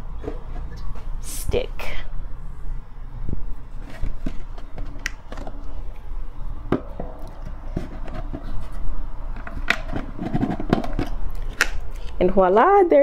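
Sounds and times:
wood knocking and scraping on gourd: 6.7s - 12.4s.

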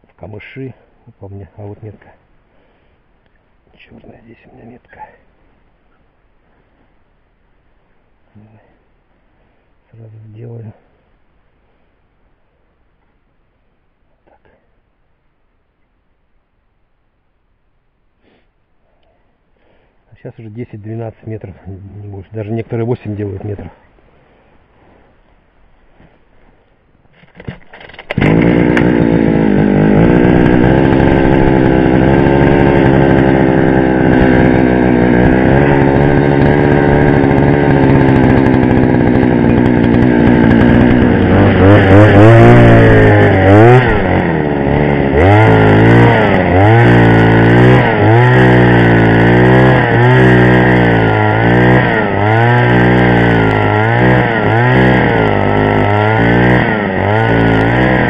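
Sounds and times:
ice auger engine revving: 27.2s - 58.0s.

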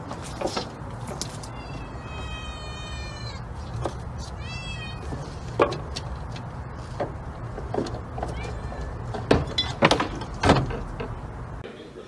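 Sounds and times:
kitten meowing: 1.5s - 3.5s, 4.4s - 5.1s.

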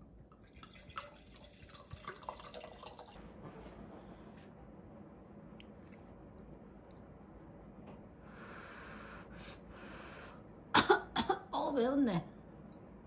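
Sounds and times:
wine pouring into glass: 0.3s - 3.2s.

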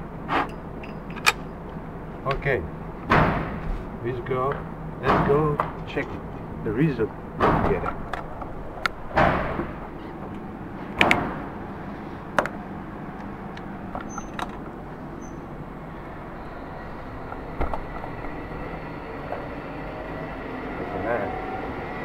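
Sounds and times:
low steady hum: 0.0s - 22.0s
loud echoing bangs: 3.0s - 3.6s
faint rising whine: 11.6s - 22.0s.

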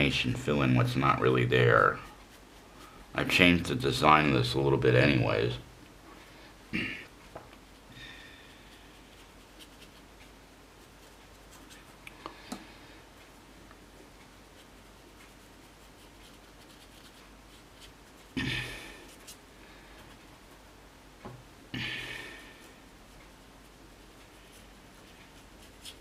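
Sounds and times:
brush scratching on paper: 1.7s - 3.0s, 8.5s - 10.1s, 10.7s - 12.0s, 14.3s - 19.4s, 22.4s - 26.0s.

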